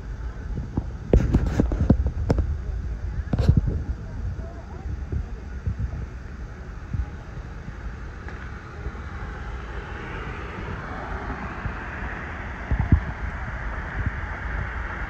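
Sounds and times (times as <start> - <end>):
steady low rumble: 0.0 - 15.0
car tyre noise passing: 7.8 - 15.0.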